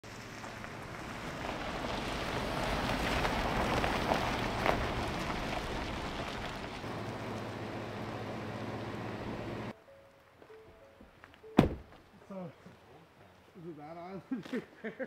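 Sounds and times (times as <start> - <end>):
truck engine hum: 0.0 - 9.7
tyres crunching over gravel: 0.0 - 9.7
gravel pops: 0.1 - 8.8.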